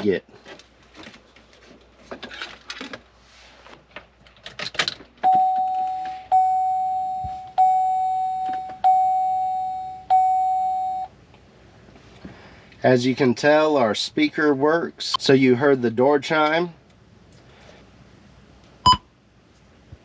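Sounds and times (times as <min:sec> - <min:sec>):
door chime bong: 0:05.2 - 0:11.1.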